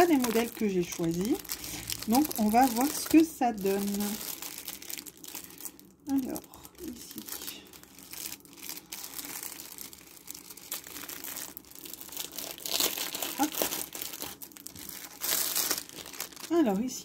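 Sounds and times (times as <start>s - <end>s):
plastic bag crinkling: 0.0s - 17.0s.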